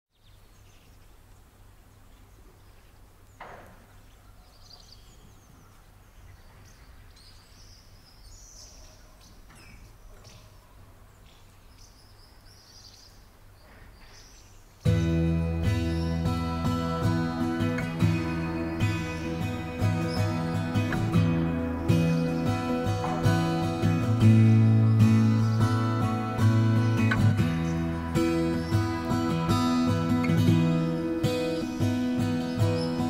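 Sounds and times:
birds chirping and calling: 2.0s - 33.0s.

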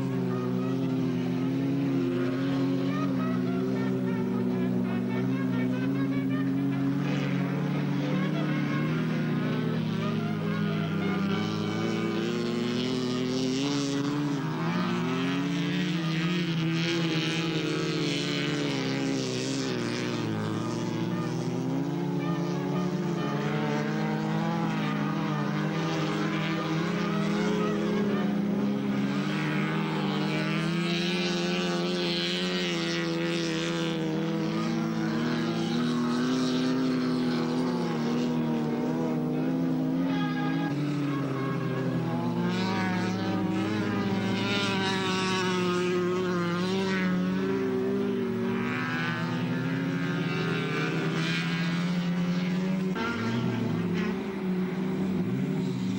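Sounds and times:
racing car engines revving: 0.0s - 55.9s.

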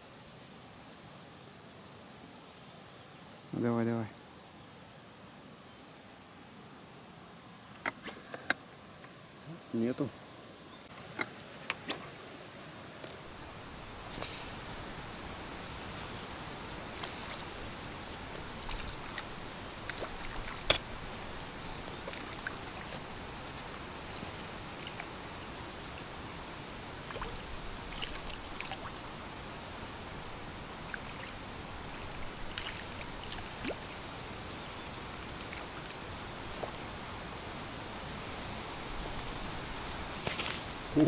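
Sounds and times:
wind: 0.0s - 41.0s
small waves lapping: 11.0s - 41.0s.

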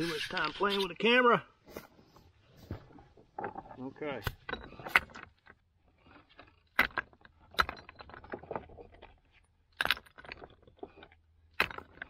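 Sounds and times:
rocks knocking and clattering: 2.6s - 12.0s.

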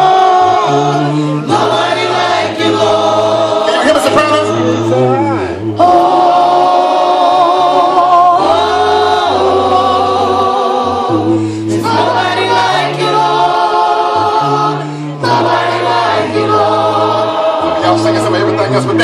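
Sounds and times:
congregation singing a cappella: 0.0s - 19.0s.

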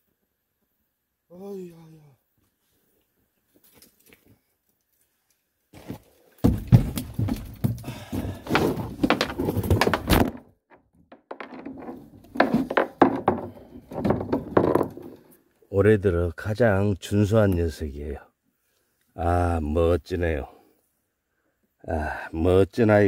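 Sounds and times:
handling knocks and thumps: 5.8s - 15.3s.

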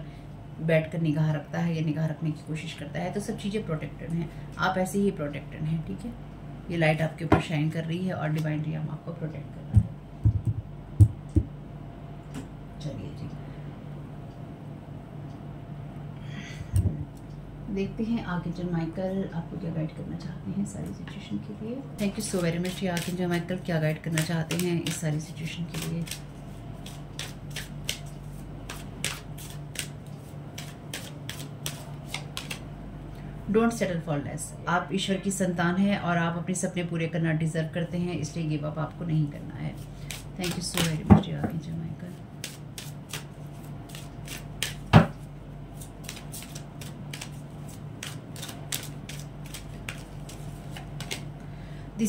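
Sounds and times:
low steady hum: 0.0s - 52.0s
cards being shuffled: 22.2s - 32.6s, 40.1s - 41.0s, 42.4s - 51.3s.

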